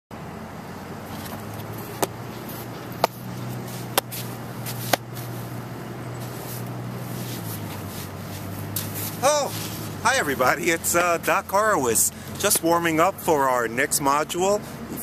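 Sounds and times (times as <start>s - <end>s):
steady low hum: 0.2s - 12.4s
baseball glove smacks: 2.8s - 3.3s, 3.9s - 5.3s.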